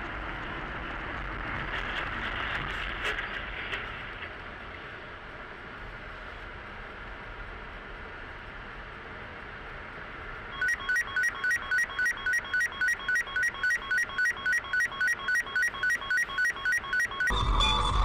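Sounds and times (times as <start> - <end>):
road noise: 0.0 - 18.0
fast electronic beeping: 10.6 - 18.0
music with heavy low beat: 17.3 - 18.0.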